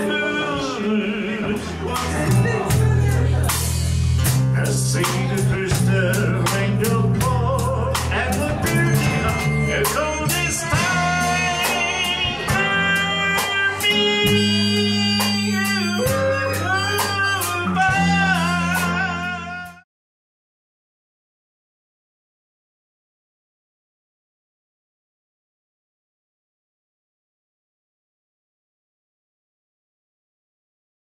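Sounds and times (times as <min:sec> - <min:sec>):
acoustic guitar: 0:00.0 - 0:19.8
drum kit: 0:00.0 - 0:19.8
electric bass: 0:00.0 - 0:19.8
man singing: 0:00.0 - 0:19.8
harmonica bending notes: 0:05.8 - 0:19.8.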